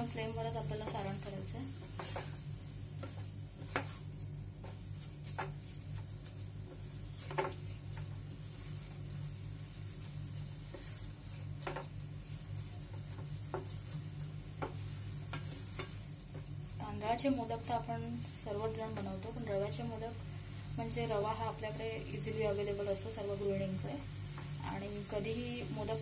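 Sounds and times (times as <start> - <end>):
soft steady sizzle: 0.0 - 26.0
wooden spatula scraping pan: 0.6 - 16.5.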